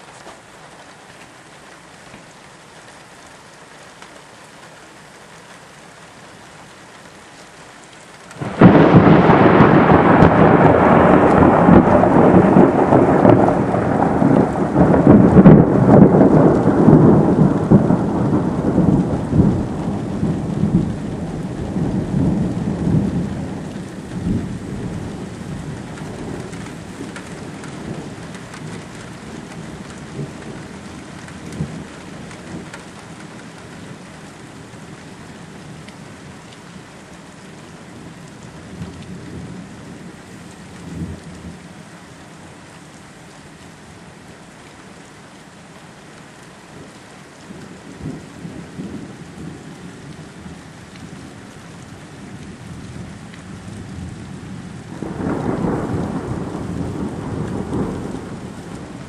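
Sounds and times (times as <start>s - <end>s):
steady rain: 0.0s - 59.0s
rumbling thunderclap: 8.4s - 30.6s, 53.6s - 59.0s.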